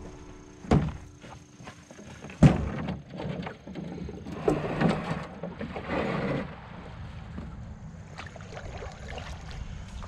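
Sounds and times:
backpack thunk into metal canoe: 0.6 - 1.1, 2.2 - 3.7
canoe hull scraping over gravel: 1.6 - 7.6.

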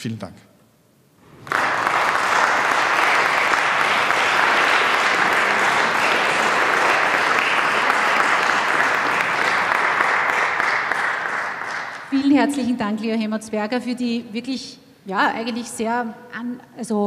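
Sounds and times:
audience applauding: 1.2 - 12.7.

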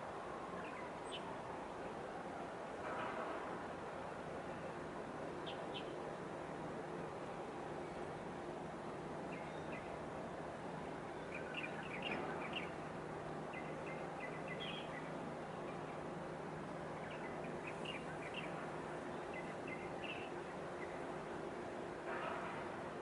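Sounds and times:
low outdoor hum: 0.0 - 23.0
small birds chirping: 5.4 - 6.0, 11.2 - 12.8, 13.5 - 16.0, 16.9 - 21.0.

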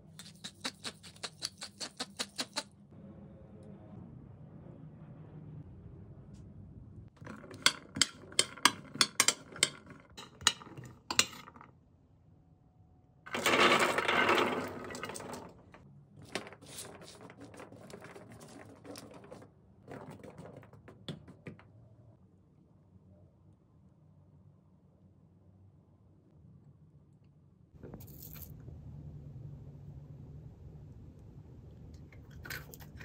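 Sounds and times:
sharp clicks and clinks: 7.2 - 11.6.

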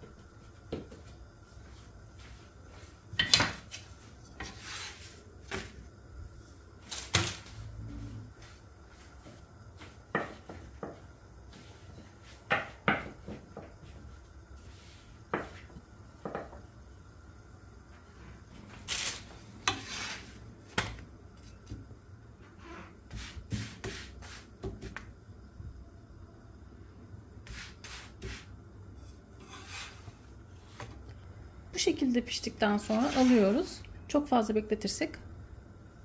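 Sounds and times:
steady low hum: 0.0 - 23.5
dough sheet rustling: 1.6 - 5.8, 6.8 - 7.6, 18.6 - 21.7, 29.4 - 31.0, 32.6 - 33.8
wooden spatula scraping a pan: 3.2 - 5.8, 19.6 - 20.4, 22.4 - 24.5, 27.5 - 31.0, 32.6 - 33.8.

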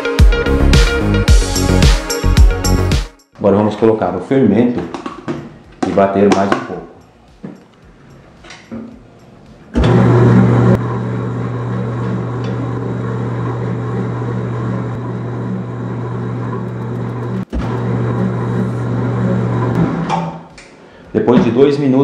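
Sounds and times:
dough mixer motor hum: 9.8 - 19.8
mixer switch: 16.5 - 20.7.

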